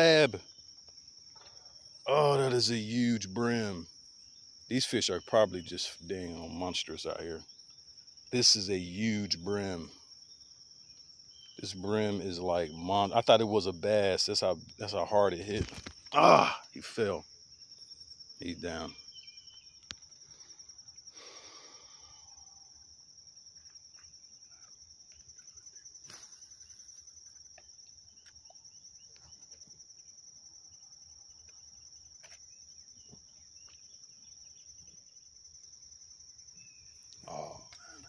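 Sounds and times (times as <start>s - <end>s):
high-pitched insect trilling: 0.0s - 38.0s
rustle: 25.2s - 30.0s.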